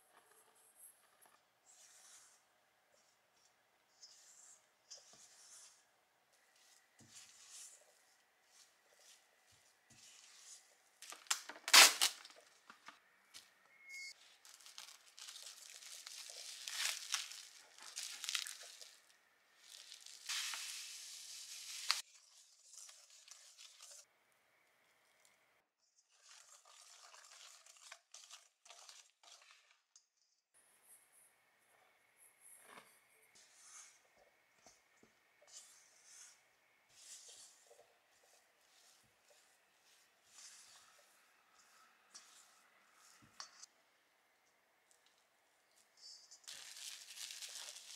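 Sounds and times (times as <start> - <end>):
spatula scraping mixing bowl: 0.0 - 11.0, 26.0 - 29.8, 32.5 - 43.7
wire whisk in dough: 0.0 - 11.0, 35.4 - 43.7
rustling: 14.2 - 24.0, 46.4 - 47.9.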